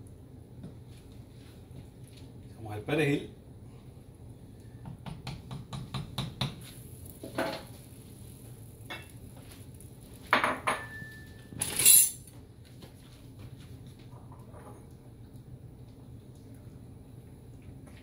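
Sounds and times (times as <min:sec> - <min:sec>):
dishes and utensils clattering: 0:10.4 - 0:12.2.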